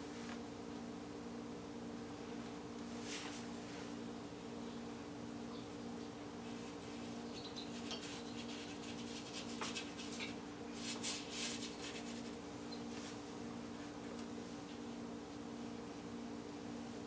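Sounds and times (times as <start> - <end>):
paintbrush scraping paint: 6.5 - 12.4.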